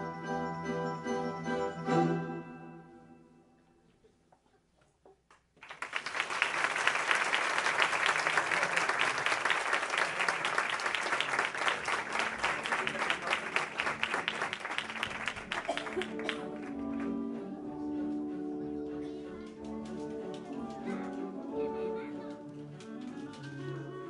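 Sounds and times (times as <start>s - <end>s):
audience applause: 5.6s - 17.4s.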